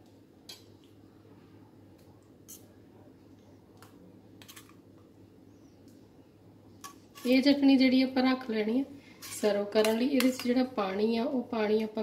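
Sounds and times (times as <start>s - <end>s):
low steady hum: 0.0s - 12.0s
steel spoon scraping steel bowl: 6.8s - 7.5s, 9.2s - 10.5s.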